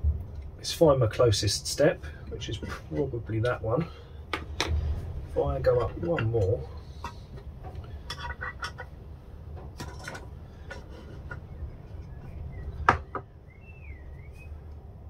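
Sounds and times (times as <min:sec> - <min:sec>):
wooden blocks knocking on workbench: 0:12.8 - 0:13.3.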